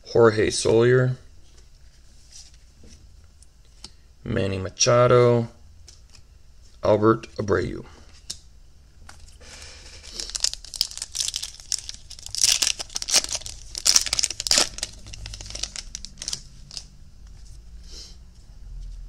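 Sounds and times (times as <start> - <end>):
foil wrapper crackling: 9.1 - 16.9.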